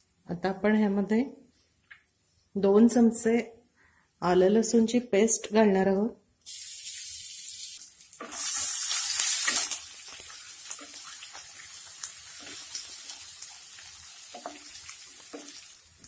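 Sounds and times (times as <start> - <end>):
paste sizzling in hot oil: 6.5 - 16.0.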